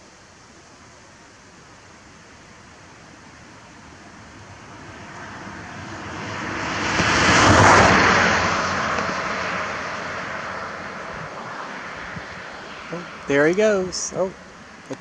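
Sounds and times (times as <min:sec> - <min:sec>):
motor vehicle passing by: 0:03.4 - 0:14.8.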